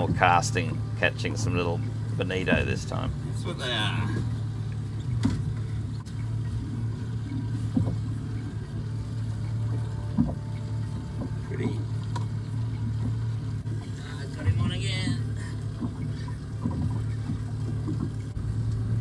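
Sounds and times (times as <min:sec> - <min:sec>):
knocks on boat: 0:00.0 - 0:00.6, 0:05.0 - 0:06.1, 0:07.7 - 0:08.1, 0:09.8 - 0:12.3, 0:14.4 - 0:15.2, 0:16.6 - 0:18.3
outboard motor idling: 0:00.0 - 0:19.0.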